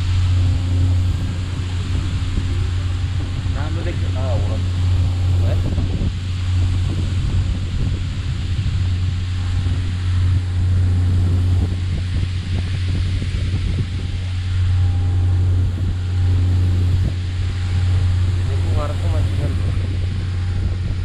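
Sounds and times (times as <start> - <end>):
boat engine droning: 0.0 - 21.0
wind on microphone: 0.0 - 21.0.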